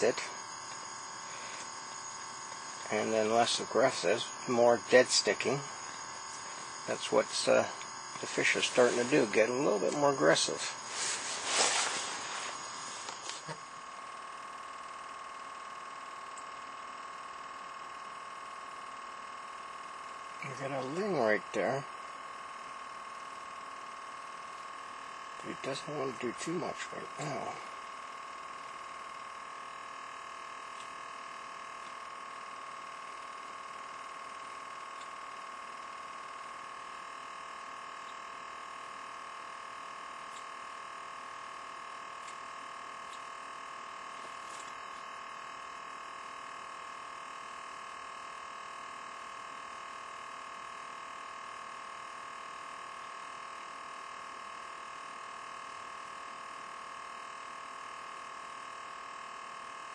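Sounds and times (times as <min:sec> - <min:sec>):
high-pitched electrical whine: 0:00.0 - 0:59.9.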